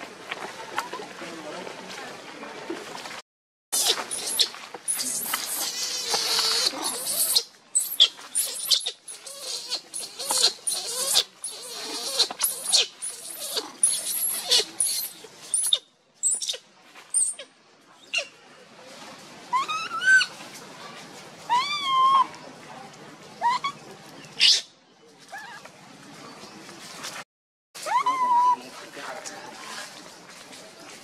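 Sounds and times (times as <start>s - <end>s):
baby monkey screaming: 3.8s - 16.6s, 19.5s - 20.3s, 21.5s - 22.3s, 23.4s - 23.8s, 24.4s - 24.7s, 27.8s - 28.6s.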